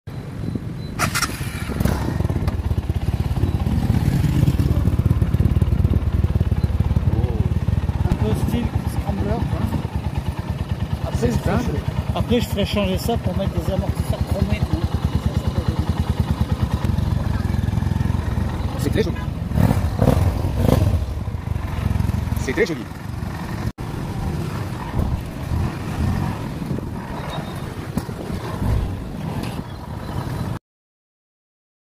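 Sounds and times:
motorcycle engine idling: 1.0 - 25.8.

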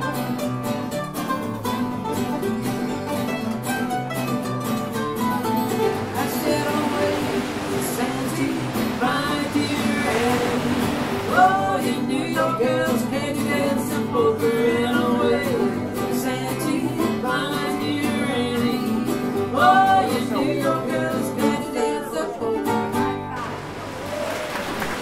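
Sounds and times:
plucked strings: 0.0 - 23.8
country song with singing: 5.0 - 23.6.

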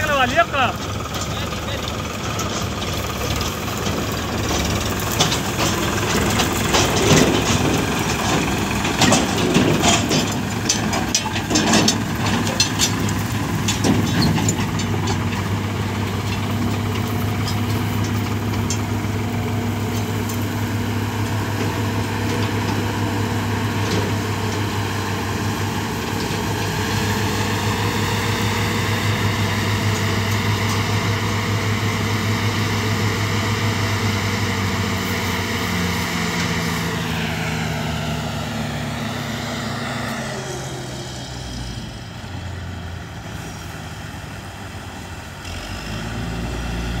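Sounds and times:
diesel farm machinery engine hum: 0.0 - 47.0.

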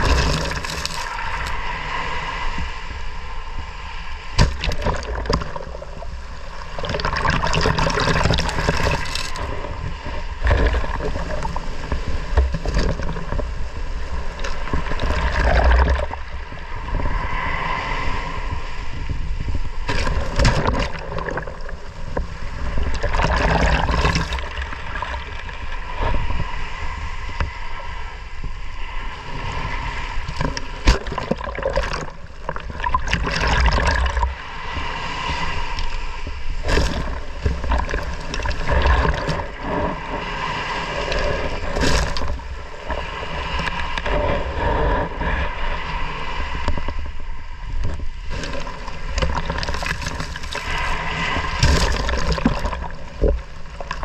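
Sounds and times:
foam fizzing and water sloshing: 0.0 - 1.6, 4.4 - 9.8, 22.6 - 25.6, 30.3 - 34.4, 36.6 - 44.4, 48.3 - 54.0
waves washing over sand: 0.0 - 54.0.

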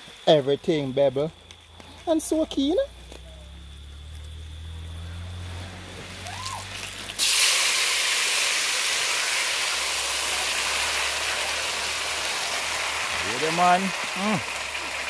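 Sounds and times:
chicken sizzling in hot oil: 6.1 - 15.0.

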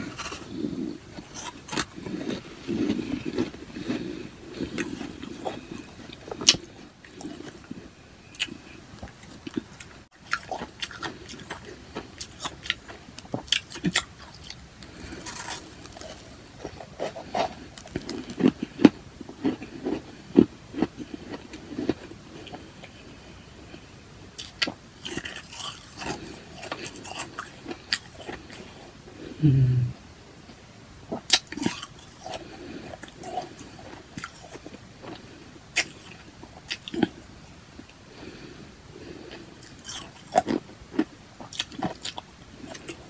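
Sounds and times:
ice being chewed: 0.0 - 23.1, 23.8 - 28.9, 31.2 - 37.3, 39.1 - 43.0.

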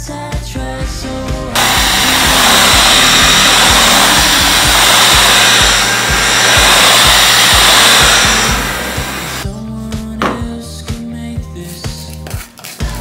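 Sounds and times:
vacuum cleaner running: 1.5 - 9.4.

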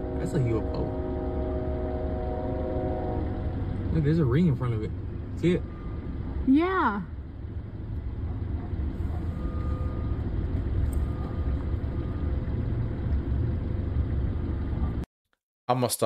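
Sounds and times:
car road and engine rumble: 0.0 - 15.1.

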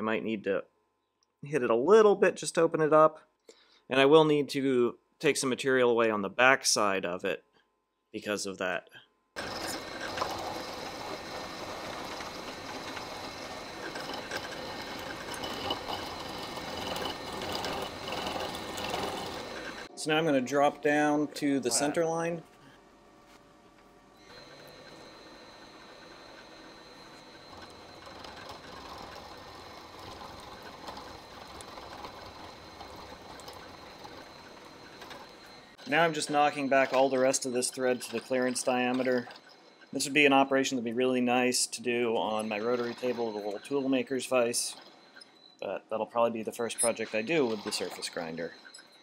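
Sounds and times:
milling machine cutting metal: 9.4 - 22.2, 24.2 - 40.9, 42.1 - 45.5, 46.6 - 49.0
thin high spindle tone: 9.4 - 22.4, 24.2 - 49.0.

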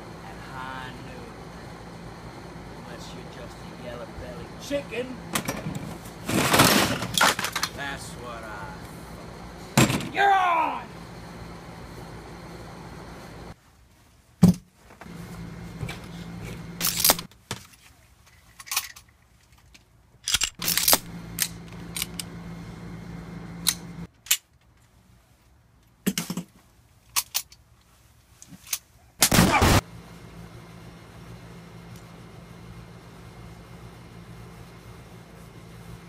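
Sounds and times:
gun loading metallic clicks: 18.5 - 22.3, 23.6 - 24.8, 27.1 - 27.6.

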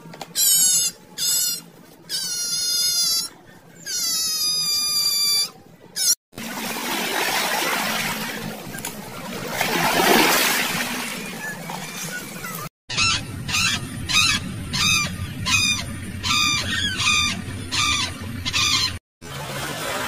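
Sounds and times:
flamingos calling: 11.4 - 19.0.

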